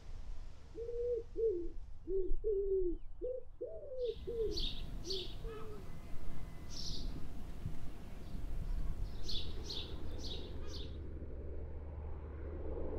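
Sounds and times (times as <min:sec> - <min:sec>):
dove cooing: 0:00.8 - 0:06.0
small birds chirping: 0:02.2 - 0:11.0.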